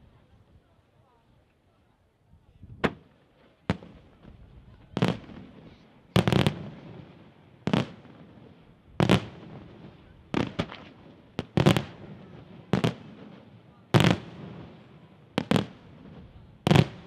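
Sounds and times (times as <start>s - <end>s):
firework bangs: 4.9s - 17.0s.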